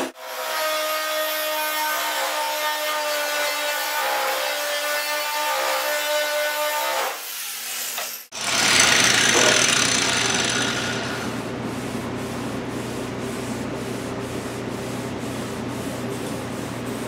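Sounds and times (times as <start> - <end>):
angle grinder: 6.6 - 11.4.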